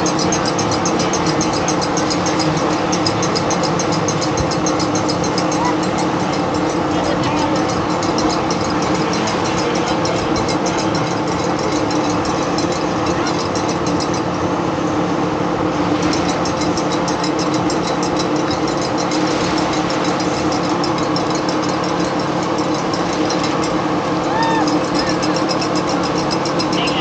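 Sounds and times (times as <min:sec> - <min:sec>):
fast high ticking: 0:00.0 - 0:27.0
steady mechanical hum: 0:00.0 - 0:27.0.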